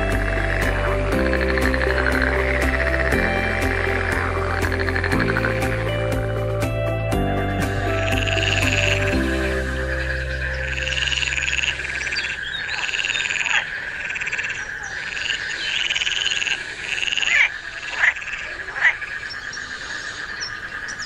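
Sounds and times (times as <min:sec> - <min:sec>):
frogs croaking: 0:00.0 - 0:06.2, 0:07.8 - 0:21.0
sharp falling frog calls: 0:09.7 - 0:21.0.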